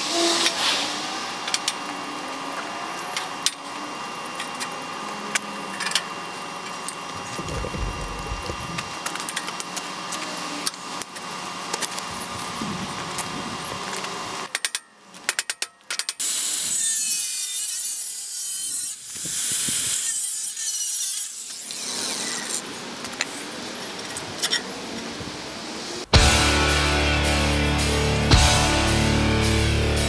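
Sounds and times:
angle grinder cutting steel: 0:16.2 - 0:22.7
heavy rock music: 0:26.1 - 0:30.0.

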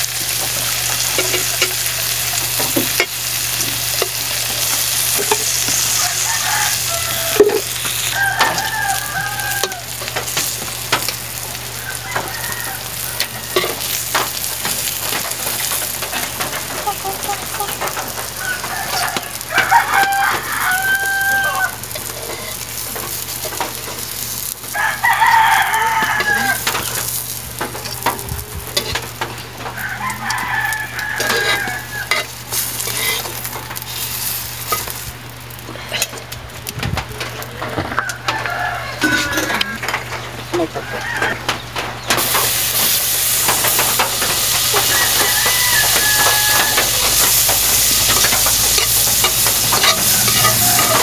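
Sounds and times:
fritters sizzling in oil: 0:00.0 - 0:40.2, 0:41.0 - 0:51.0
fire clicks and crackles: 0:00.0 - 0:51.0
rooster crowing: 0:03.9 - 0:15.7, 0:16.5 - 0:22.6, 0:24.6 - 0:28.2, 0:29.6 - 0:35.0, 0:37.6 - 0:41.6, 0:43.4 - 0:51.0.

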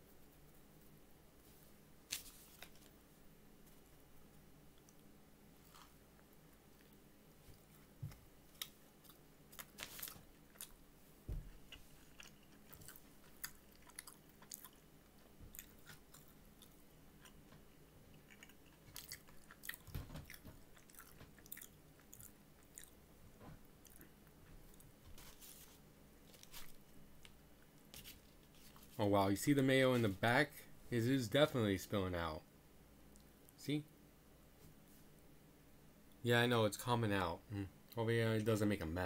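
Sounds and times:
person chewing and crunching: 0:04.8 - 0:10.8, 0:11.4 - 0:23.0, 0:23.8 - 0:24.9.

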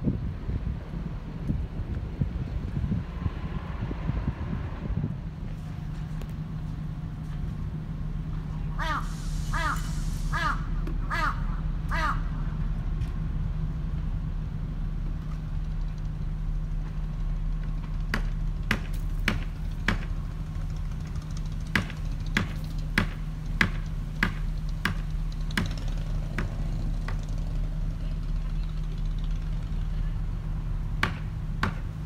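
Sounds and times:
ship machinery humming: 0:05.2 - 0:32.0
sharp knocks: 0:18.0 - 0:20.2, 0:21.6 - 0:27.3, 0:31.0 - 0:31.9.

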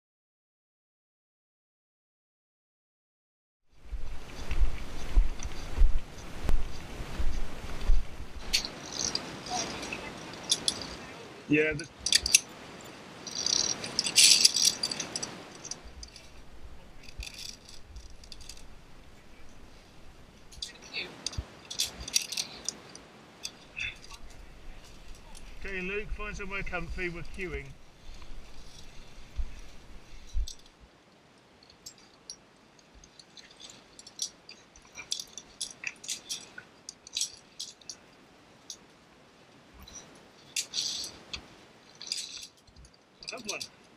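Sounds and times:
metal carabiners clinking: 0:08.4 - 0:11.0, 0:11.9 - 0:30.8, 0:31.6 - 0:38.9, 0:39.8 - 0:43.9.

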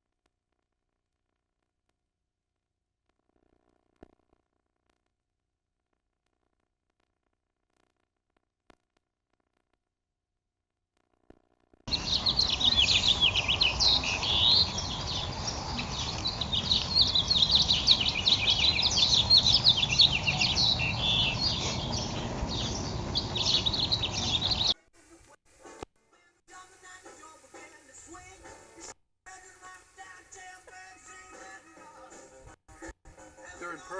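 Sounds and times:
low steady rumble: 0:11.9 - 0:24.7
small birds chirping: 0:11.9 - 0:24.8.

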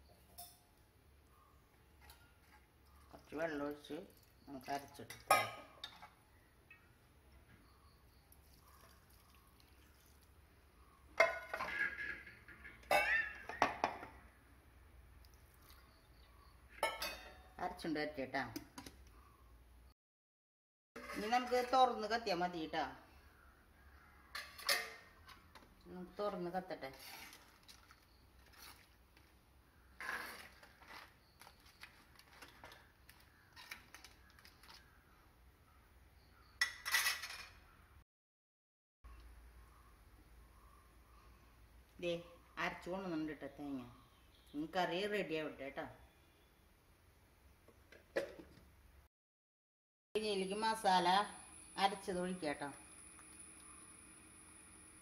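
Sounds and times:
metal cookware clanking: 0:05.1 - 0:06.1, 0:11.2 - 0:14.1, 0:16.8 - 0:17.5, 0:24.3 - 0:25.1, 0:36.6 - 0:37.6
utensil scraping clay pot: 0:21.0 - 0:22.0, 0:26.8 - 0:29.0, 0:30.0 - 0:32.8.

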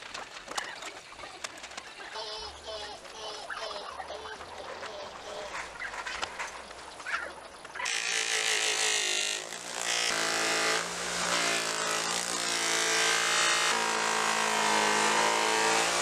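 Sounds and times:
scratching and clicks: 0:00.0 - 0:12.8
power tool motor whining: 0:07.8 - 0:16.0.

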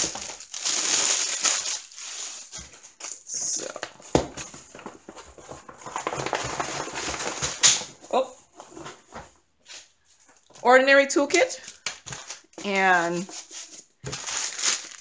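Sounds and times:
plastic wrap crinkling: 0:00.0 - 0:08.1, 0:11.5 - 0:15.0.

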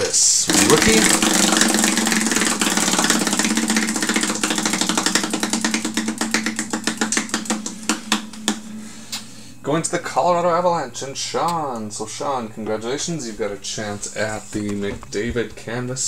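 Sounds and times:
prize wheel clicker ticking: 0:00.5 - 0:08.4.

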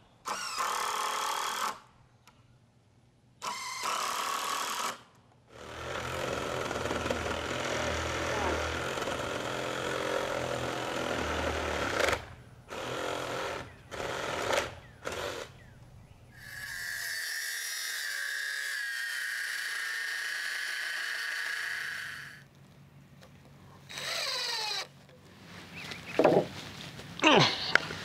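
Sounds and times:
power drill driving screws into wood: 0:00.3 - 0:01.9, 0:03.4 - 0:15.5, 0:23.9 - 0:24.9.

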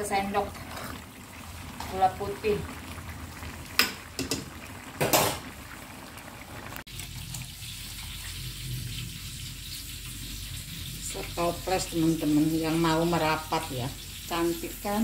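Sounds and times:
metal spoon stirring in wok: 0:00.6 - 0:01.0.

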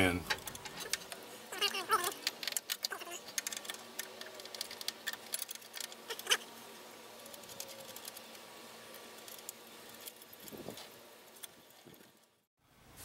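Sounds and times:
metal bracket clicks and scrapes: 0:00.3 - 0:06.4.

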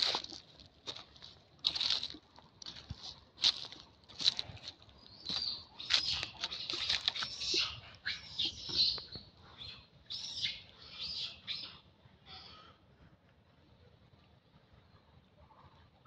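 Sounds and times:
small birds chirping: 0:03.4 - 0:11.8.

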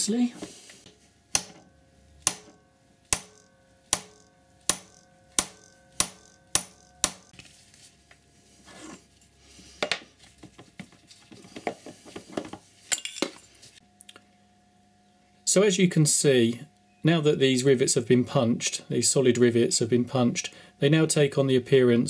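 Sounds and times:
sharp metallic clicks ringing: 0:01.3 - 0:07.4.

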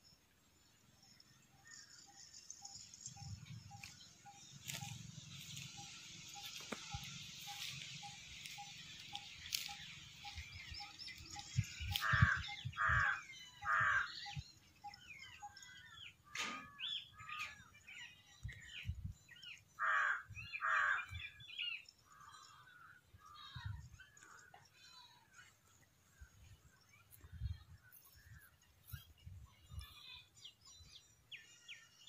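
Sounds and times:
small birds chirping: 0:00.0 - 0:32.0
crows cawing: 0:11.9 - 0:14.4, 0:19.8 - 0:21.4.

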